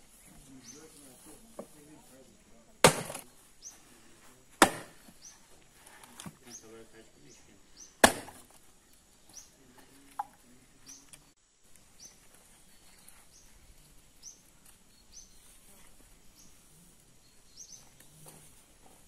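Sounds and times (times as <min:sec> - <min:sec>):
small bird chirping: 0:00.2 - 0:01.5, 0:05.1 - 0:05.5, 0:06.4 - 0:08.0, 0:08.8 - 0:18.6.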